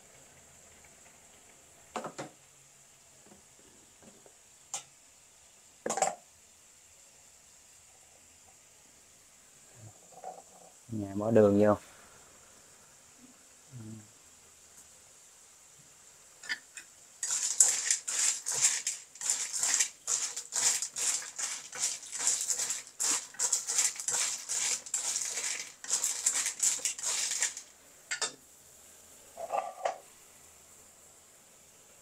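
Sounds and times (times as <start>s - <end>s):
snail shells scraping in a pan: 17.2s - 27.8s, 29.4s - 30.0s.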